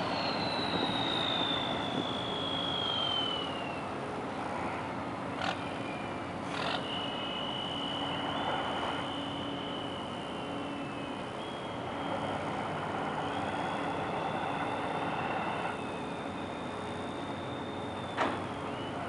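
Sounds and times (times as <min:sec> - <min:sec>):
machinery rumble: 0:00.0 - 0:19.0
machinery whine: 0:00.0 - 0:19.0.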